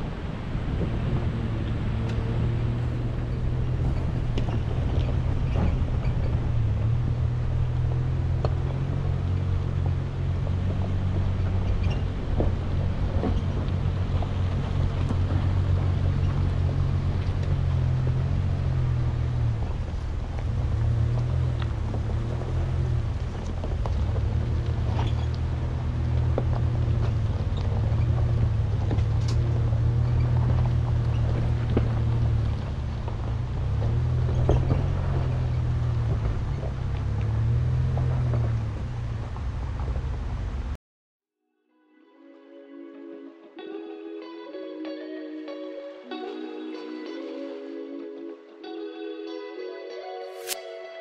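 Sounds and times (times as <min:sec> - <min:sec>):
pickup engine running: 0:00.0 - 0:40.8
tyres crunching over gravel: 0:02.6 - 0:40.6.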